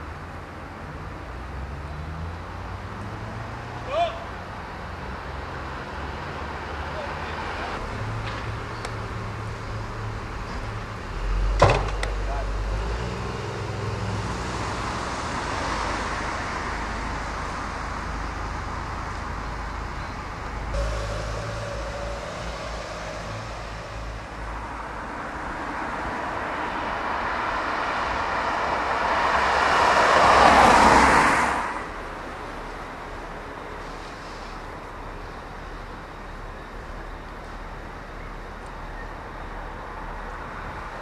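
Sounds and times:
rushing traffic noise: 0:00.0 - 0:41.0
vehicle engine low rumble: 0:07.7 - 0:30.9.

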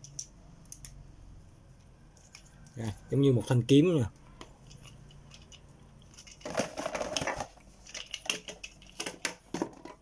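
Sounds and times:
packaging crinkling: 0:06.0 - 0:09.2.

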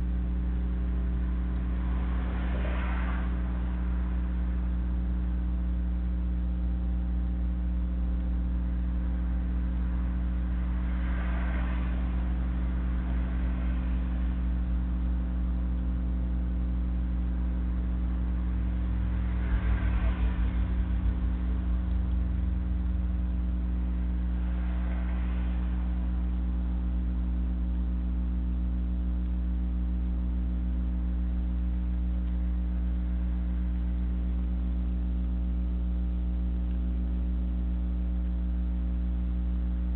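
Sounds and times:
swell of noise: 0:00.0 - 0:29.2
brief low rumble: 0:00.0 - 0:39.9
electrical hum with stacked tones: 0:00.0 - 0:39.9.

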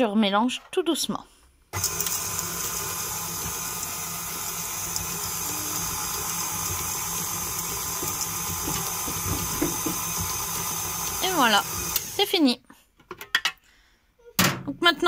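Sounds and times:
stand mixer running: 0:01.8 - 0:12.2.

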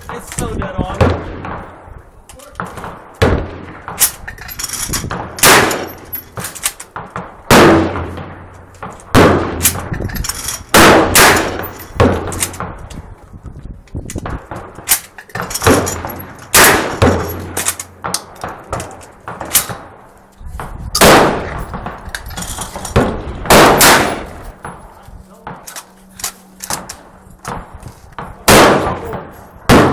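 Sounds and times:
shotgun blasts with echo: 0:00.1 - 0:01.9, 0:05.1 - 0:06.0, 0:06.9 - 0:10.0, 0:10.7 - 0:12.8, 0:14.2 - 0:20.0, 0:20.6 - 0:22.0, 0:22.8 - 0:24.8, 0:27.5 - 0:29.9.

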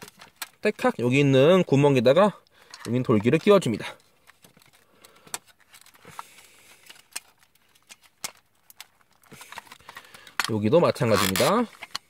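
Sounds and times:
plastic toy parts clicking: 0:02.7 - 0:12.0.

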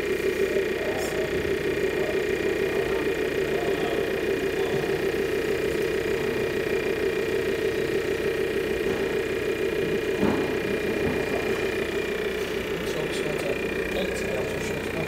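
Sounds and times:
model machinery humming: 0:00.0 - 0:15.0.

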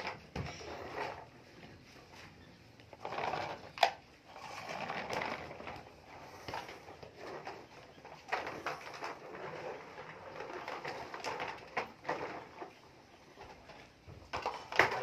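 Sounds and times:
plastic toys knocking on wood floor: 0:03.0 - 0:15.0.

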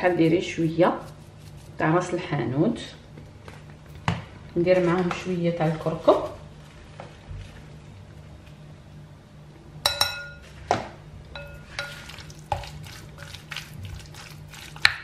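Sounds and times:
spoon knocking glass bowl: 0:09.8 - 0:10.5, 0:11.4 - 0:12.1
wooden spoon stirring meat: 0:11.4 - 0:15.0.

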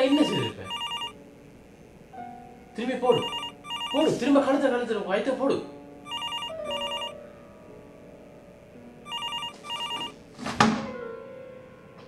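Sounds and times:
telephone ringing: 0:00.0 - 0:01.2, 0:03.1 - 0:04.4, 0:06.1 - 0:07.2, 0:09.1 - 0:10.2.

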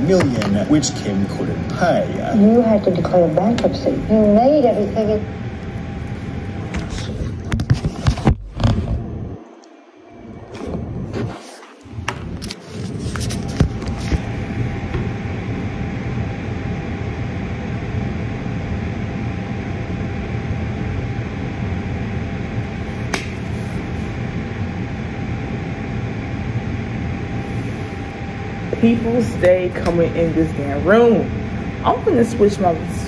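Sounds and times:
mechanical hum with whine: 0:00.0 - 0:33.0.

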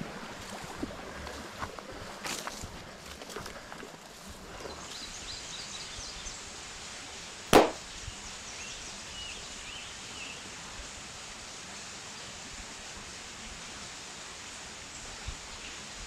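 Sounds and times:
rifle shot: 0:07.6 - 0:07.8.

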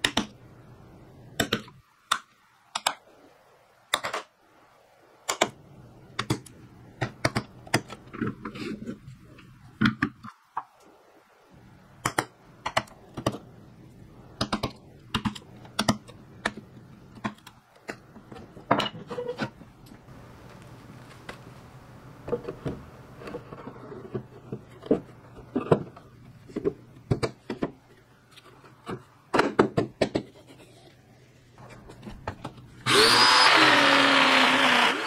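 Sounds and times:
faint steady background hum: 0:00.0 - 0:35.0.

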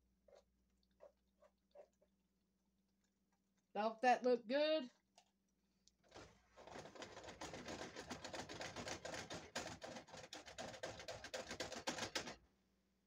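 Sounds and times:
saucepan rattling on burner: 0:06.1 - 0:12.4.

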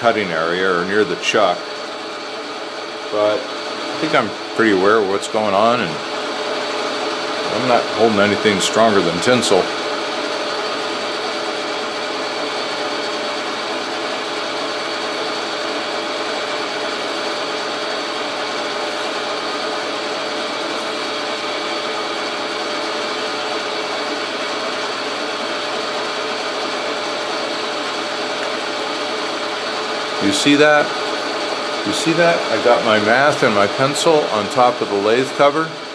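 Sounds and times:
metal lathe humming and whining: 0:00.0 - 0:35.9.

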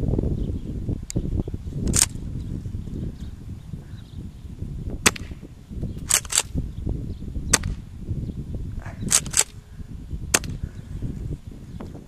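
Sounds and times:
wind on microphone: 0:00.0 - 0:12.0
shotgun pump racking clack: 0:01.9 - 0:02.2, 0:06.0 - 0:06.5, 0:09.1 - 0:09.6
airsoft shotgun shot: 0:05.0 - 0:05.4, 0:07.5 - 0:07.8, 0:09.1 - 0:09.6, 0:10.3 - 0:10.6.

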